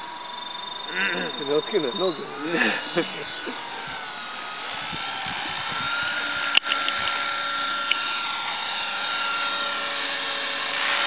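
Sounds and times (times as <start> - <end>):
rc helicopter rotor whining: 0.0 - 11.0
sharp clicks: 6.4 - 7.2, 7.8 - 8.1.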